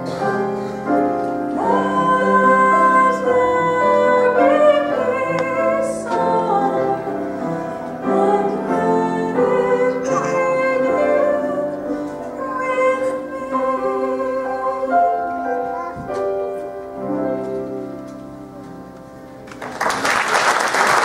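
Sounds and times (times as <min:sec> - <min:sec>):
piano chords: 0:00.0 - 0:20.1
woman singing: 0:01.5 - 0:07.4, 0:08.0 - 0:15.4
audience applause: 0:19.4 - 0:21.0.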